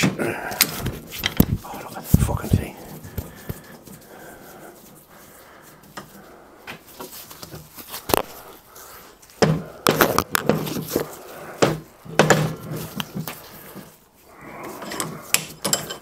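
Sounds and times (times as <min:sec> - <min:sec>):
metal part clunking and rattling: 0:14.9 - 0:16.0.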